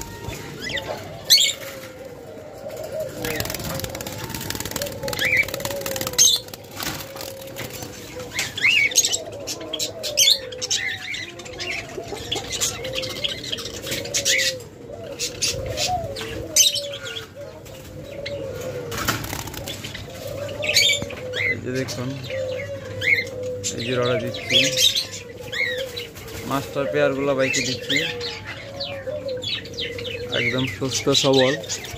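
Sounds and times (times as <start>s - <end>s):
doves cooing: 0.0s - 31.9s
wings flapping: 3.0s - 7.9s, 18.9s - 19.9s.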